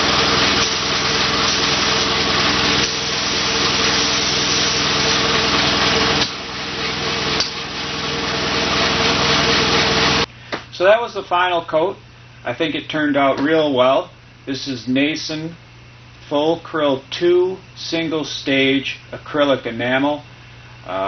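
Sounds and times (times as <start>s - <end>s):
air spray gun hissing: 0.0s - 10.3s
air compressor humming: 0.0s - 21.0s.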